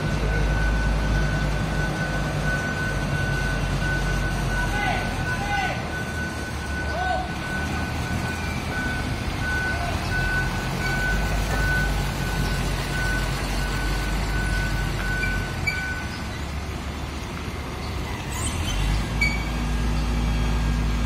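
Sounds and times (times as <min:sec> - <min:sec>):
reversing alarm beeping: 0:00.0 - 0:16.4
heavy diesel engines running: 0:00.0 - 0:21.0.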